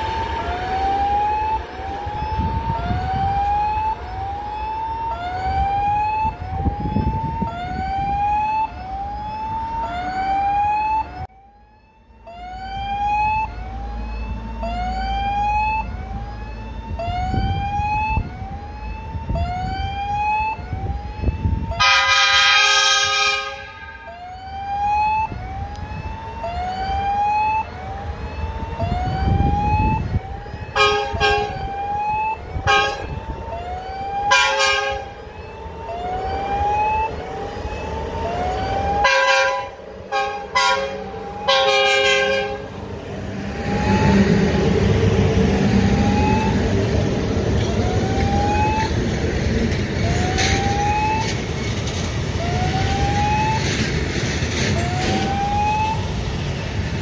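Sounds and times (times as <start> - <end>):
level crossing warning tone: 0.0 - 57.0
traffic rumble: 0.0 - 57.0
train horn blowing: 21.8 - 24.1, 30.8 - 31.6, 32.6 - 33.2, 34.3 - 35.1, 39.0 - 42.7.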